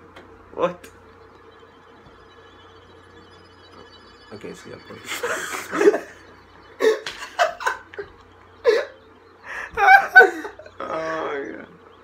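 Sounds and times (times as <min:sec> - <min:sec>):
young men laughing: 0:05.0 - 0:11.2.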